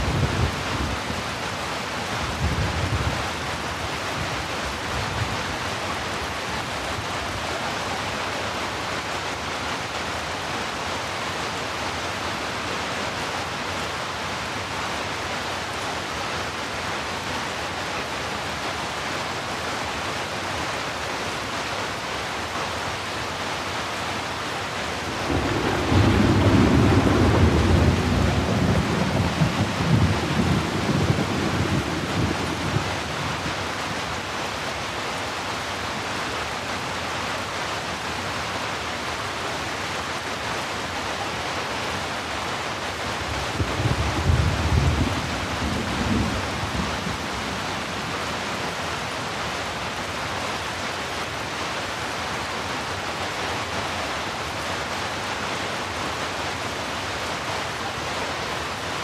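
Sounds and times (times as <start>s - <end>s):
heavy rain: 0.0s - 59.0s
thunder rumbling: 25.0s - 33.5s, 43.3s - 48.8s.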